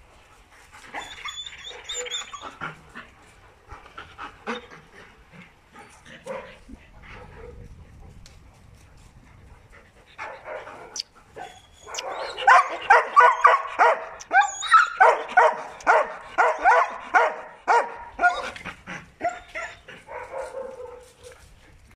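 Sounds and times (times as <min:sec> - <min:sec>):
dog barking: 0:10.2 - 0:11.0, 0:11.9 - 0:18.4, 0:19.2 - 0:21.4.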